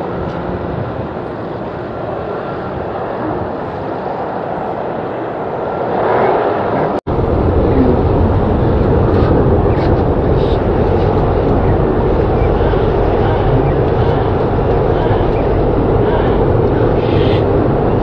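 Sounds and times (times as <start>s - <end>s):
jet engine climbing out: 0.0s - 18.0s
jet engine on runway: 0.0s - 18.0s.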